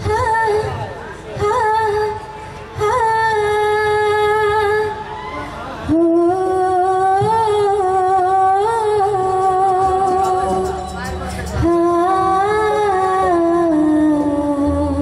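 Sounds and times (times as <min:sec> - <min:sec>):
woman singing long notes: 0:05.9 - 0:15.0.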